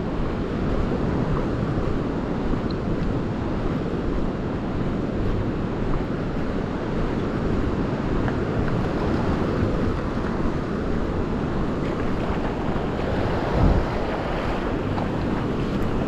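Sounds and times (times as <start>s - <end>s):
wind buffeting microphone: 0.0s - 16.0s
surf washing onto beach: 6.5s - 16.0s.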